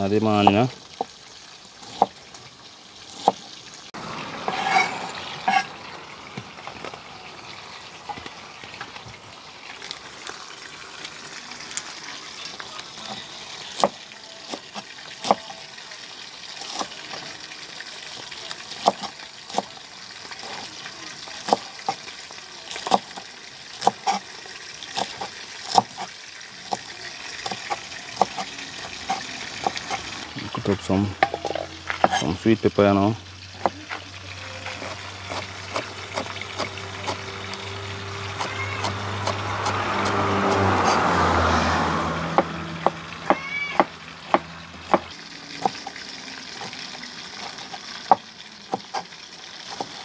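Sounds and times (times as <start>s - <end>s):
knife chopping on cutting board: 21.4s - 22.0s, 23.8s - 24.2s, 25.0s - 26.1s, 27.4s - 30.1s, 32.0s - 32.3s, 33.6s - 33.8s, 34.7s - 37.2s, 42.3s - 45.9s.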